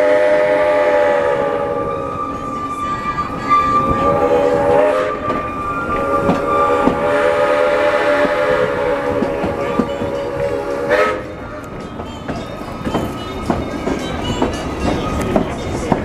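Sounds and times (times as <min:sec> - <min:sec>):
steam locomotive whistle: 0:00.0 - 0:11.6
train wheels clicking on rail joints: 0:00.0 - 0:16.0.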